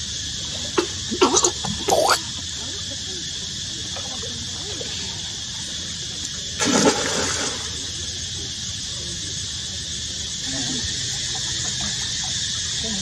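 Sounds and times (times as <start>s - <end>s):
monkey splashing in water: 6.6s - 7.9s.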